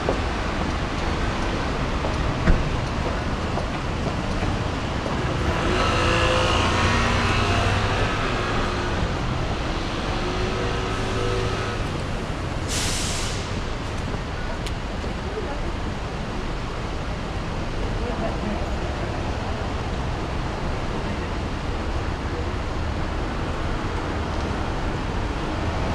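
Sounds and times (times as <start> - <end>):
road traffic: 0.0 - 25.9
short vehicle hiss: 12.6 - 13.6.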